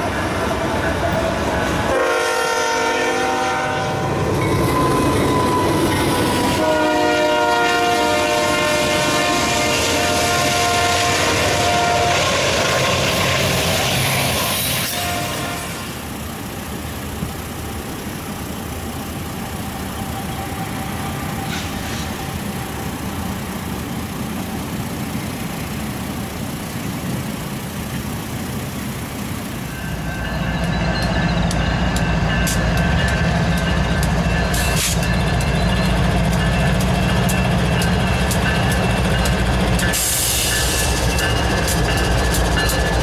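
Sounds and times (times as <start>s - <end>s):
distant train: 0.0s - 43.0s
freight train passing clatter: 0.0s - 43.0s
locomotive engine rumble: 0.0s - 43.0s
faint train horn: 1.9s - 4.1s, 6.4s - 12.4s, 14.8s - 16.0s
train horn chord: 1.9s - 4.1s, 6.5s - 12.3s, 14.8s - 16.0s
diesel locomotive horn: 1.9s - 4.3s, 5.3s - 12.7s, 14.5s - 16.1s.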